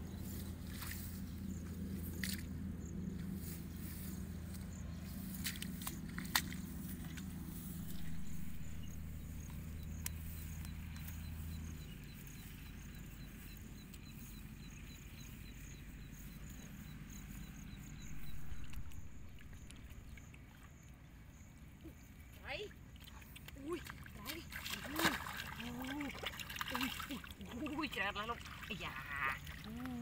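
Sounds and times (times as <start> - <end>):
steady low hum: 0.0 - 22.3
faint regular chirping: 0.0 - 22.7.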